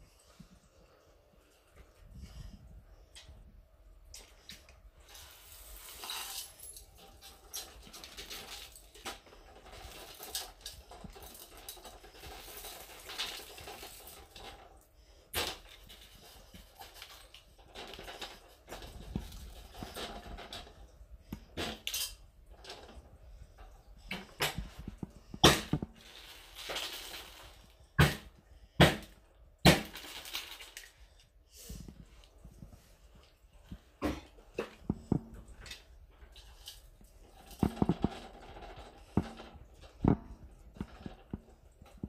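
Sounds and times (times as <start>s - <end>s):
debris rustling and clinking: 5.2s - 27.9s, 29.7s - 31.1s.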